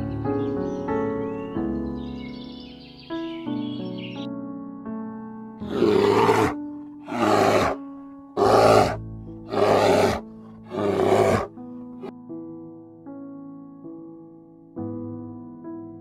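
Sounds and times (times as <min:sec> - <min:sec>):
soft piano music: 0:00.0 - 0:16.0
harsh animal calls: 0:05.6 - 0:07.8, 0:08.4 - 0:11.5.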